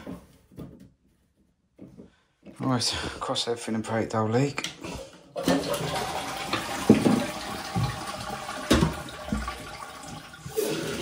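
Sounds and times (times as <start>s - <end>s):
toilet flushing: 4.8s - 11.0s.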